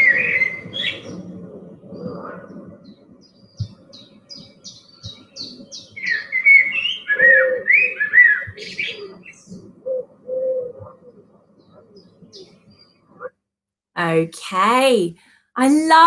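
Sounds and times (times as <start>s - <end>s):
blackbird singing: 3.3s - 9.4s.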